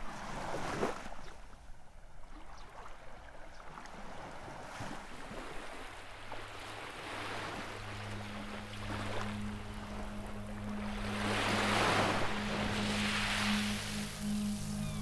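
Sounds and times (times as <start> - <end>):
sea water splashing: 2.2 - 15.0
low steady hum: 5.9 - 15.0.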